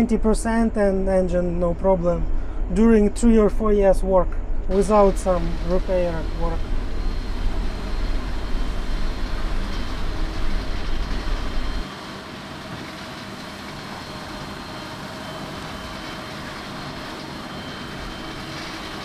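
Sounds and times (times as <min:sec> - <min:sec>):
combine harvester rumble: 0:04.2 - 0:19.0.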